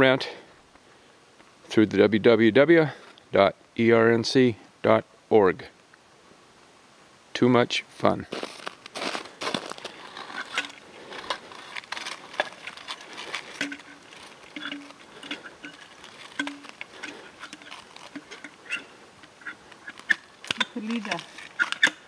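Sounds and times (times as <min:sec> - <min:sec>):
hand handling wooden sign: 0:08.3 - 0:22.0
short low squeaks: 0:13.6 - 0:20.3.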